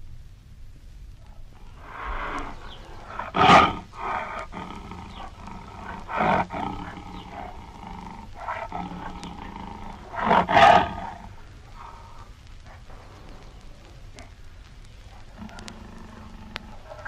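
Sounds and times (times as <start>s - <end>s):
tiger roaring: 1.7s - 12.2s, 15.2s - 17.0s.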